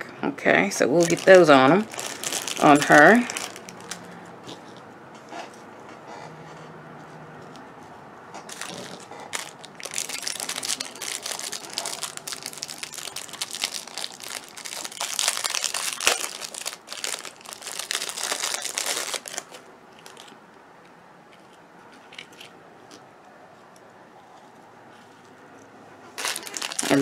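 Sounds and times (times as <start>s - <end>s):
plastic packaging crinkling: 0.8s - 4.7s, 8.5s - 20.4s, 26.2s - 27.0s.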